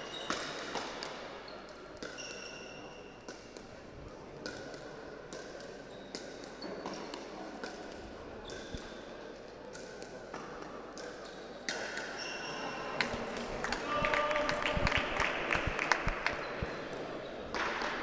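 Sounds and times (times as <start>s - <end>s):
shoe squeaks: 2.1s - 3.2s, 12.2s - 12.8s.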